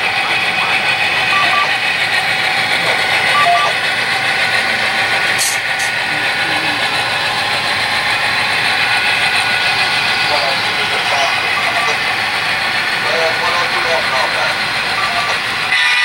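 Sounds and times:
model locomotive engine drone: 0:00.0 - 0:16.0.

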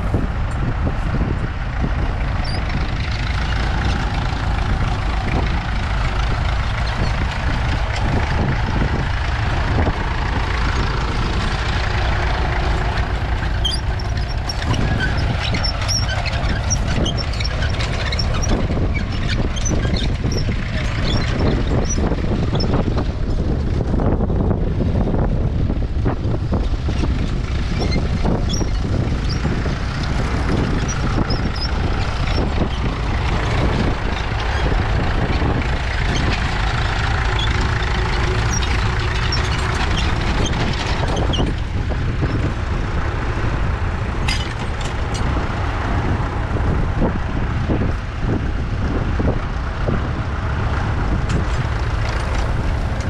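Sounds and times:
tractor engine running: 0:00.0 - 0:53.0.

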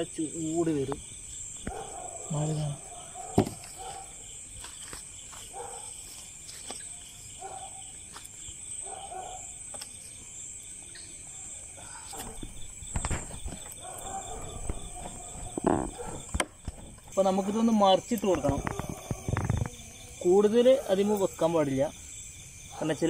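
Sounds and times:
crickets and insects trilling: 0:00.0 - 0:23.0
dull thumps: 0:12.2 - 0:17.2.

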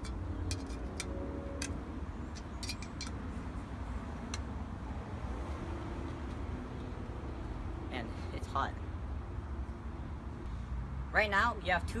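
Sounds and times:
clicks of metal parts: 0:00.0 - 0:03.2.

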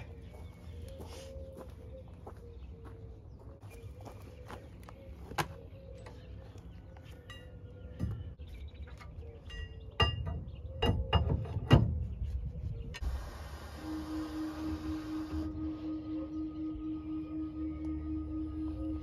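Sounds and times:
sharp metal knocks: 0:09.5 - 0:12.1.

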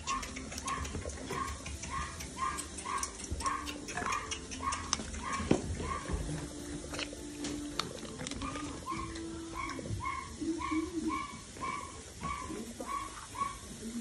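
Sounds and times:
kibble crunching: 0:00.0 - 0:10.2
puppies chewing dry food: 0:00.0 - 0:10.2.

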